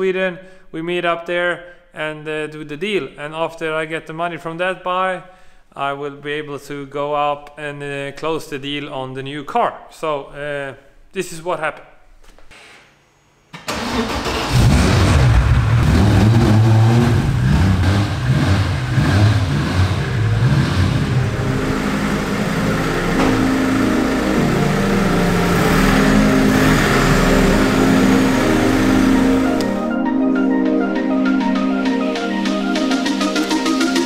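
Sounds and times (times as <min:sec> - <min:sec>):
car engine starting and revving: 0:13.6 - 0:30.0.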